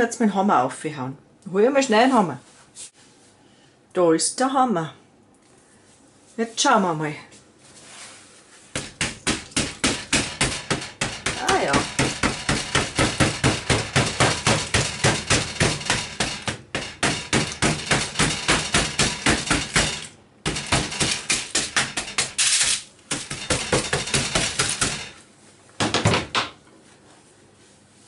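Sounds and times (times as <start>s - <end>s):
hammer cracking hard crust: 8.7s - 25.2s.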